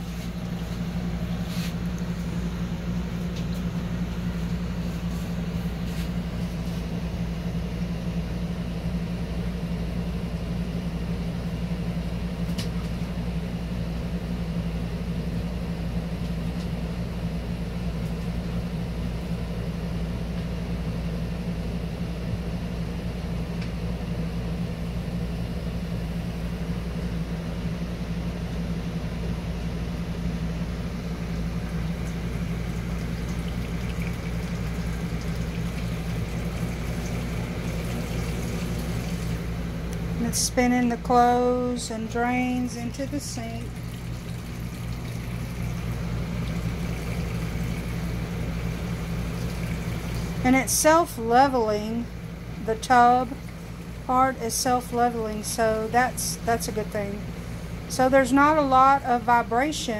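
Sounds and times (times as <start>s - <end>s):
washer drain pump humming: 0.0s - 59.9s.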